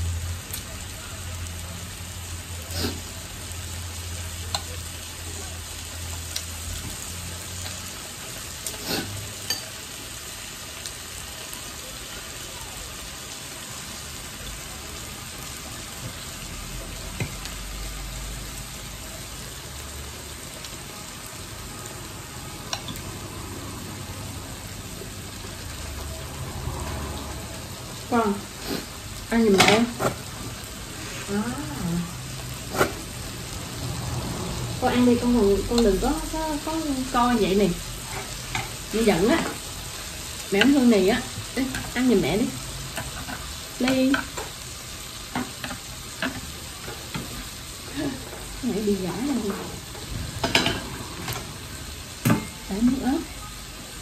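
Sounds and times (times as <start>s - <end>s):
meat sizzling on a grill plate: 0.0s - 54.0s.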